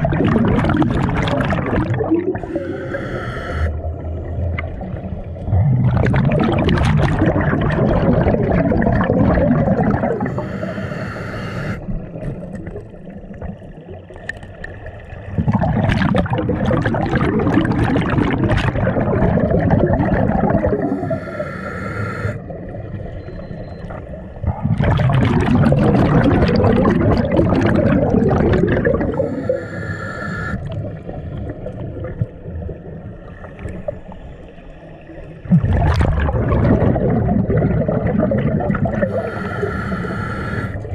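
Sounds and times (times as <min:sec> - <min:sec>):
diver exhaling bubbles: 0:00.0 - 0:14.0, 0:15.3 - 0:22.7, 0:24.4 - 0:32.8, 0:35.4 - 0:40.9
regulator hissing inhale: 0:02.4 - 0:03.7, 0:10.2 - 0:11.9, 0:20.7 - 0:22.4, 0:29.1 - 0:30.6, 0:39.0 - 0:40.9.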